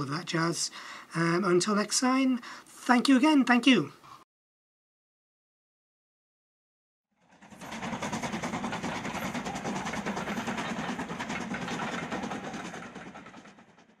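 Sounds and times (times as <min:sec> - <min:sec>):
steam locomotive exhaust beating: 0:07.4 - 0:14.0.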